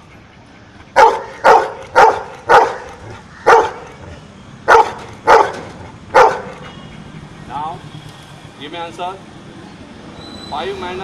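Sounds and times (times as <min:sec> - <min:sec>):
dog barking loudly: 0:00.9 - 0:06.6.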